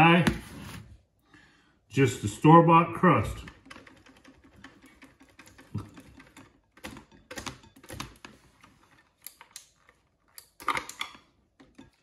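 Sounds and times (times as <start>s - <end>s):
objects handled on kitchen counter: 0.2s - 1.0s.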